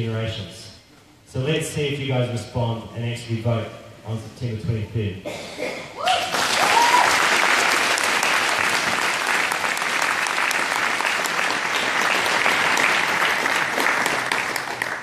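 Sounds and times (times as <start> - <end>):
rising whoop: 6.0 - 7.2
audience applauding: 6.1 - 15.0.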